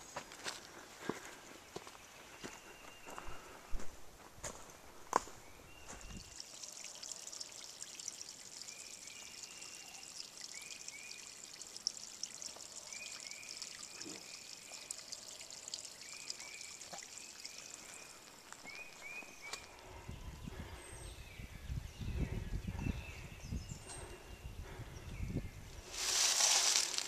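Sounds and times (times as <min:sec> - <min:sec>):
creek trickling: 0:05.7 - 0:19.8, 0:25.8 - 0:27.0
bird chirping: 0:08.6 - 0:11.4, 0:12.4 - 0:25.6.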